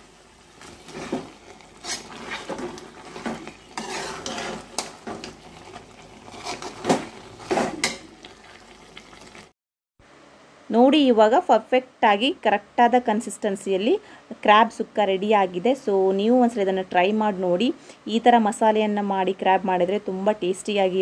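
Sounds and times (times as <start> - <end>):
spoon scraping metal pot: 1.8 - 5.4.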